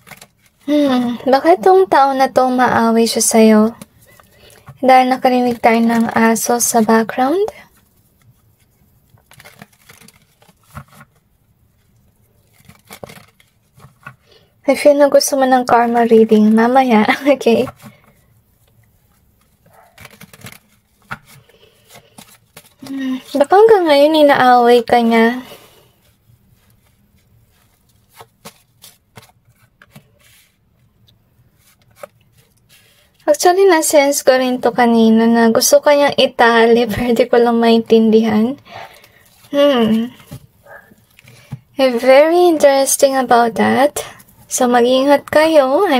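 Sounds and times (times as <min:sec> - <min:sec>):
cards being shuffled: 0:00.0 - 0:01.1, 0:03.4 - 0:14.3, 0:15.7 - 0:23.7, 0:26.0 - 0:33.0.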